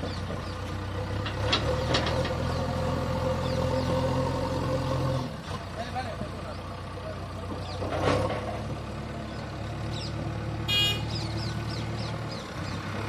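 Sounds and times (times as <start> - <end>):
tractor diesel engine idling: 0.0 - 13.0
short horn toot: 10.7 - 11.1.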